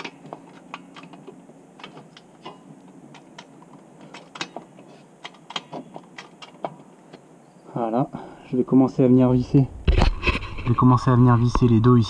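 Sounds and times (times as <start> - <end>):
metal clicks and clunks: 0.0 - 7.2.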